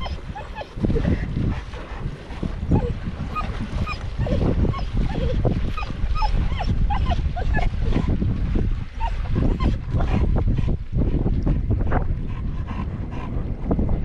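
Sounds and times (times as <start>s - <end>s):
dog whimpering and yipping: 0.0s - 1.2s, 2.7s - 8.1s, 9.0s - 10.1s
continuous low rumble: 0.0s - 14.0s.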